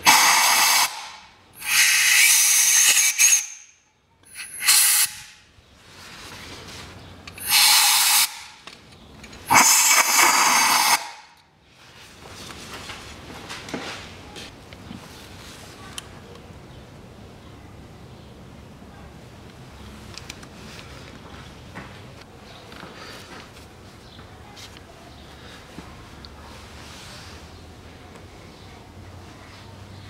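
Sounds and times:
compressed air blow gun hissing: 0.0s - 3.6s, 4.3s - 5.3s, 7.4s - 8.5s, 9.5s - 11.3s.

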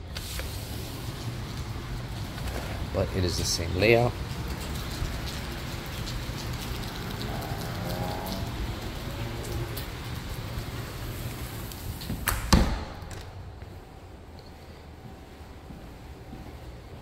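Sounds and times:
rain hiss: 0.0s - 12.4s
door shutting with thud: 12.0s - 13.4s.

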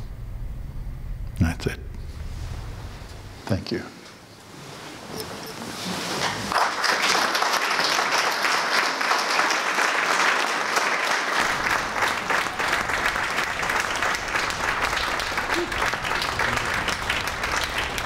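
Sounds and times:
audience applauding: 6.2s - 18.0s.

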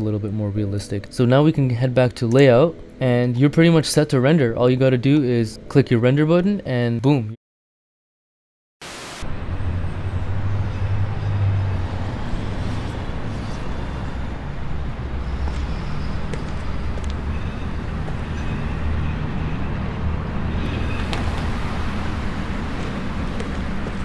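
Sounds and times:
distant city traffic hum: 9.2s - 24.0s.

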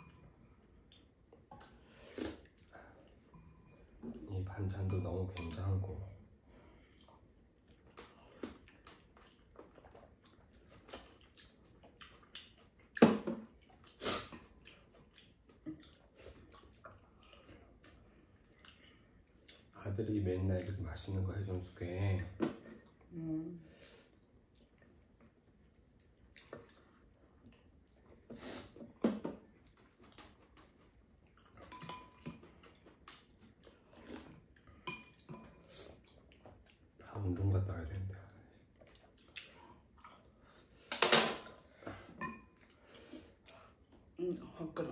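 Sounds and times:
chewing: 6.8s - 19.8s, 24.4s - 28.4s, 29.4s - 37.1s, 38.3s - 40.7s
spoons clinking against bowls: 31.6s - 32.4s.

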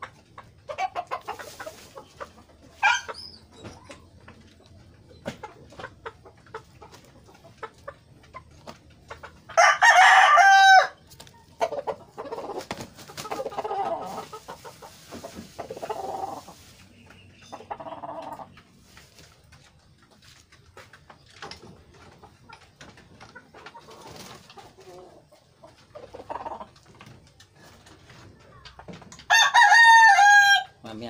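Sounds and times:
chickens clucking: 0.0s - 31.0s
rooster crowing: 9.5s - 11.0s, 29.3s - 30.7s.

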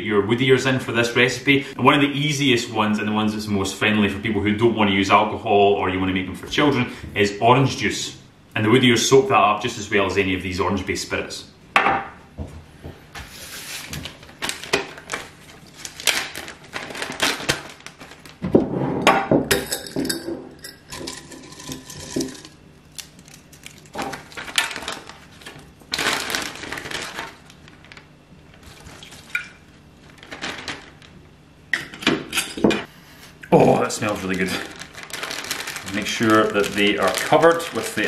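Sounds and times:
dried mushrooms rustling: 14.0s - 18.4s, 21.1s - 31.4s, 33.6s - 38.0s.

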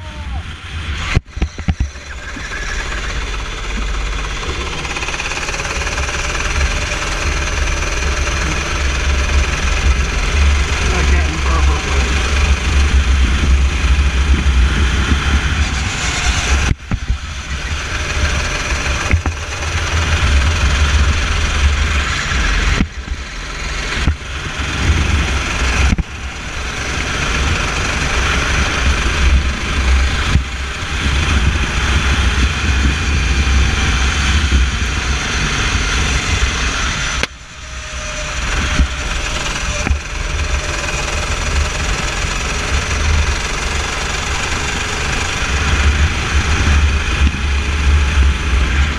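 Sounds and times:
racing kart engine revving: 0.4s - 48.9s.

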